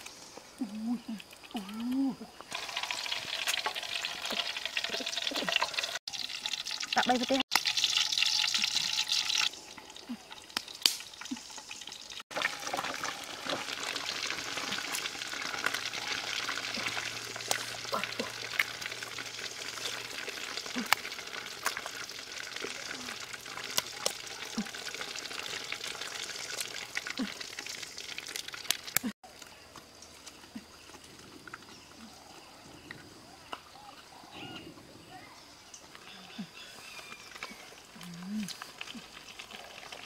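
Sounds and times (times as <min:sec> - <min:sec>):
oil crackling and popping: 0:01.2 - 0:29.5, 0:37.0 - 0:40.0
eggs sizzling in oil: 0:02.5 - 0:29.2, 0:37.1 - 0:40.0.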